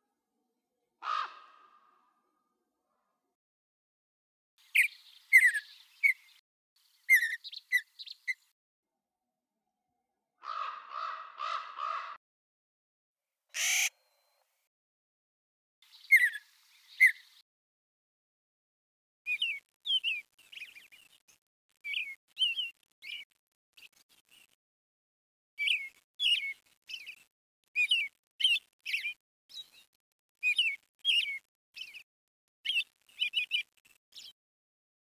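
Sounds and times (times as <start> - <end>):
small bird chirping: 4.6 - 8.5, 15.8 - 17.4, 19.3 - 24.6, 25.6 - 34.4.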